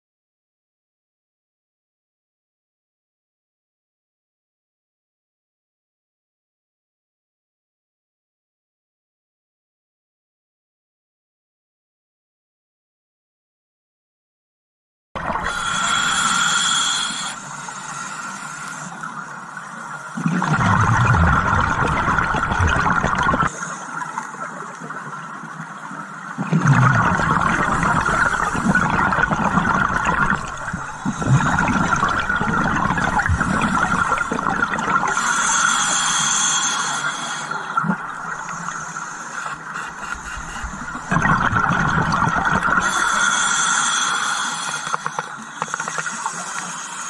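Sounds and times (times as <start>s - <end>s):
regulator inhalation hiss: 15.4s - 19.3s, 27.5s - 32.3s, 35.1s - 41.1s, 42.8s - 47.0s
exhaled bubbles rumbling: 20.2s - 23.5s, 26.4s - 35.2s, 40.2s - 43.0s.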